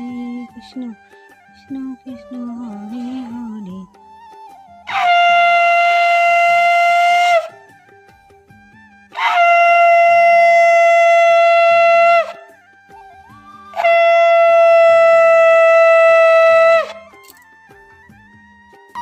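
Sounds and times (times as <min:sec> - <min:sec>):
conch shell blasts: 0:04.9 - 0:07.8, 0:09.1 - 0:12.6, 0:13.7 - 0:17.5.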